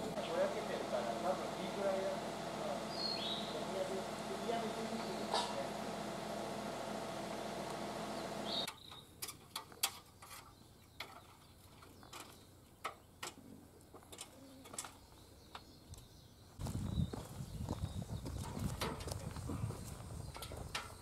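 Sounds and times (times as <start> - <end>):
excavator engine running: 0.0 - 8.7.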